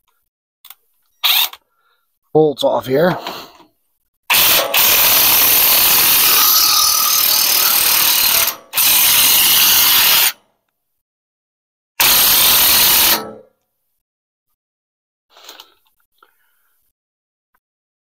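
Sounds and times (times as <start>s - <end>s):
battery-powered driver running: 4.3s - 10.4s, 12.0s - 13.3s.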